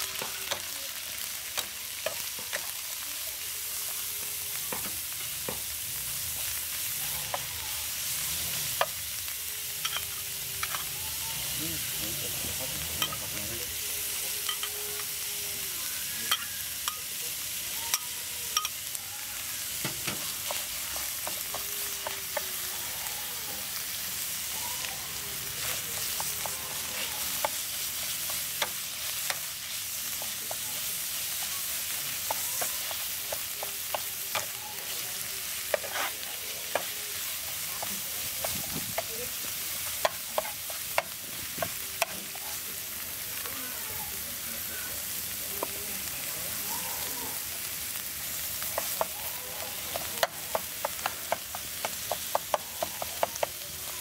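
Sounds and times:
aromatics sizzling in oil: 0.0 - 54.0
spatula scraping wok: 16.0 - 45.7.

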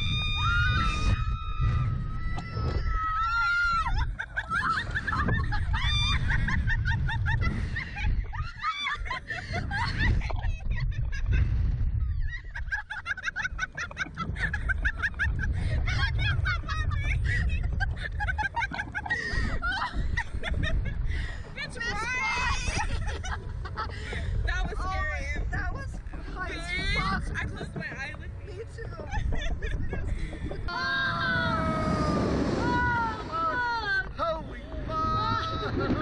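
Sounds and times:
wind rumble on microphone: 0.0 - 36.0
women screaming with laughter: 0.1 - 11.4, 12.1 - 20.8.

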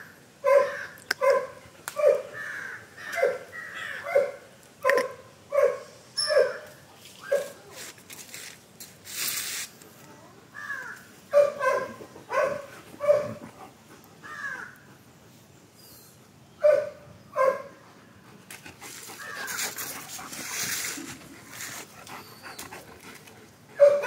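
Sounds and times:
dogs barking: 0.4 - 6.7, 11.3 - 13.5, 16.6 - 17.8, 23.8 - 24.0.

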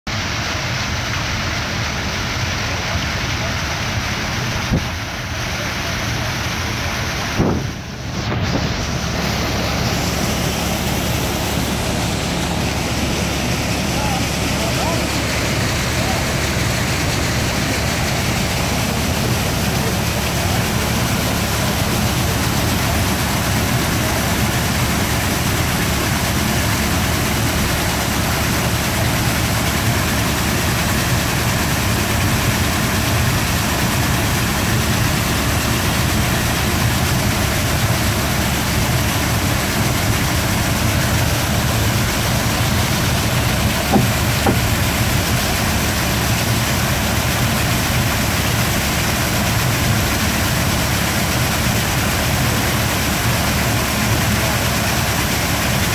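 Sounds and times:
rush of falling water: 0.1 - 55.9
brief knock: 7.4 - 7.7, 43.8 - 44.7.

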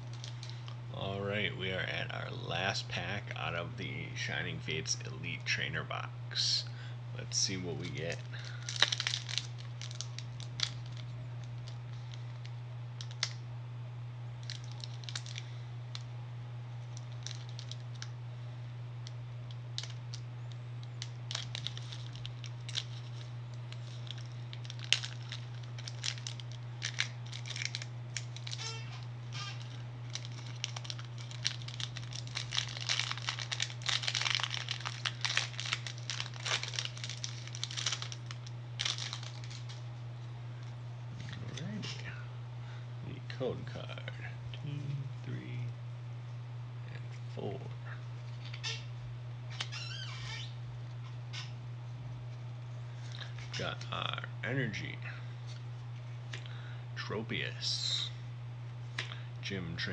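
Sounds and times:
foil wrapper crinkling and tearing: 0.0 - 0.8, 7.5 - 13.4, 14.4 - 16.0, 16.8 - 18.2, 19.0 - 39.8, 49.5 - 50.5, 53.0 - 53.9
steady low hum: 0.0 - 59.9.

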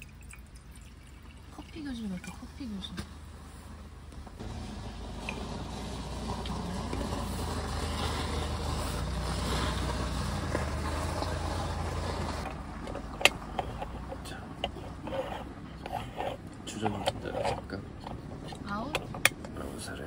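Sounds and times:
vehicle engine running: 1.7 - 20.0.

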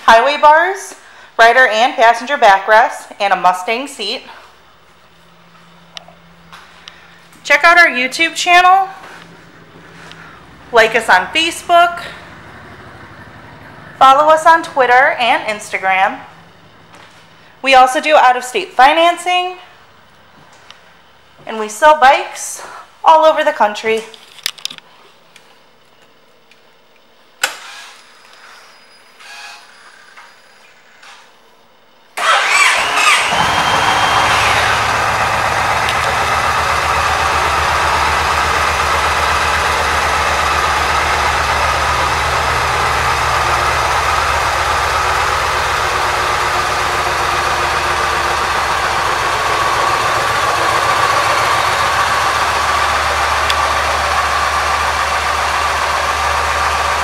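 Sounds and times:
motorcycle engine idling: 8.8 - 17.6, 32.2 - 57.0
starter motor cranking: 32.2 - 57.0.

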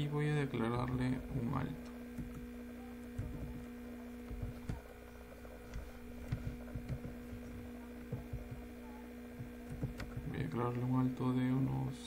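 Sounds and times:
electrical hum: 0.0 - 12.0
soft keyboard clicks: 4.3 - 4.9.

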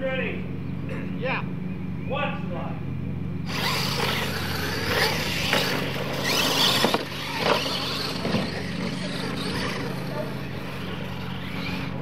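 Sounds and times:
toy car motor whine: 3.4 - 12.0
tyres rushing on dirt: 3.5 - 12.0.

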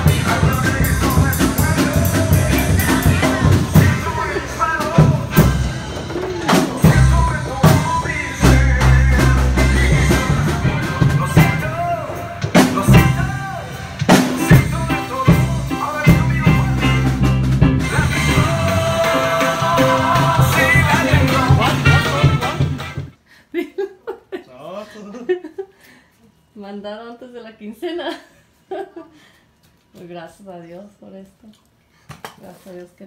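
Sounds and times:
bass guitar: 0.0 - 23.2
drum hits: 0.0 - 23.2.

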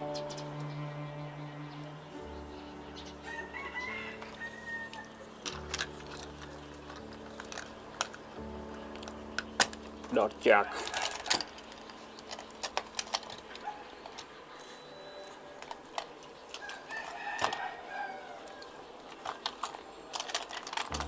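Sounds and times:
toy truck clicking and tapping: 10.8 - 14.4, 19.1 - 21.0.

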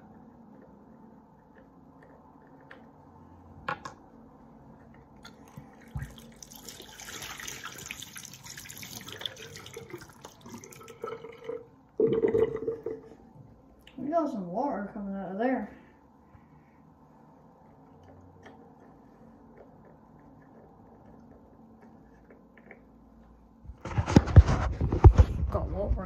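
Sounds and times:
water pouring from a bottle: 5.2 - 13.0.

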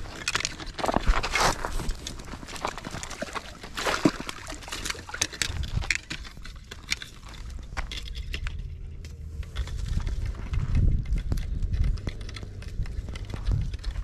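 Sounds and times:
footsteps in sandals on dirt: 0.8 - 4.5.

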